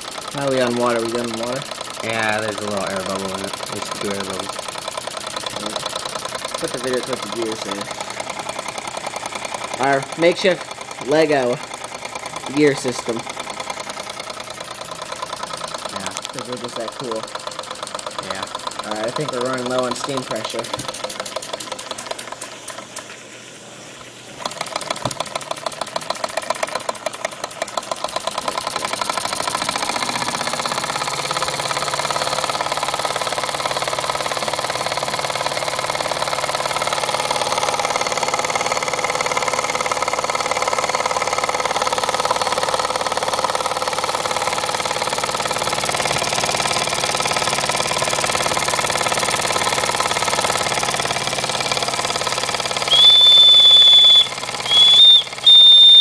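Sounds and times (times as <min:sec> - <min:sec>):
model steam engine chuffing: 0:00.0 - 0:56.0
steam hissing: 0:52.0 - 0:56.0.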